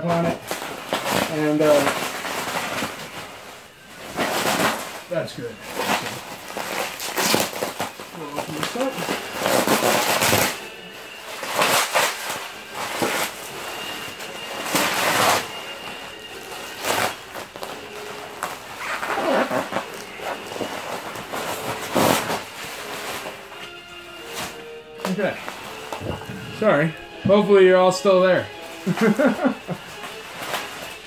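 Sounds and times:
bubble wrap crinkling: 0:00.0 - 0:31.0.

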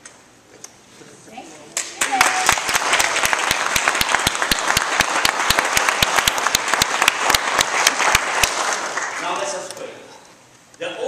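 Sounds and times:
close hands clapping: 0:01.8 - 0:09.9
congregation applauding: 0:01.8 - 0:09.9.

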